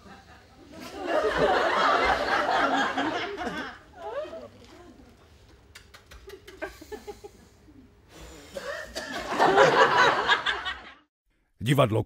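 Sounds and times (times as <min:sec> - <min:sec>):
audience laughing: 0:00.0 - 0:04.4, 0:09.0 - 0:11.1.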